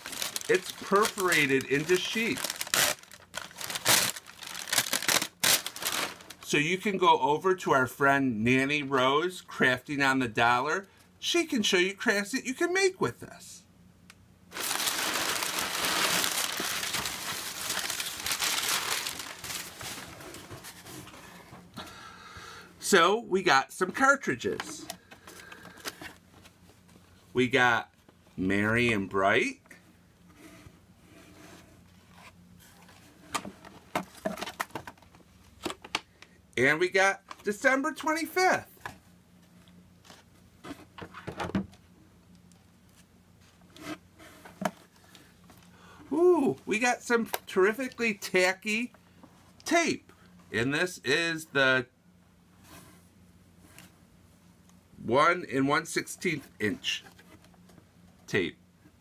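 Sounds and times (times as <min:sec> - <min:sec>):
packing paper crumpling and rustling: 0:00.0 - 0:06.5, 0:14.5 - 0:21.2
faint steady hum: 0:00.0 - 0:59.0.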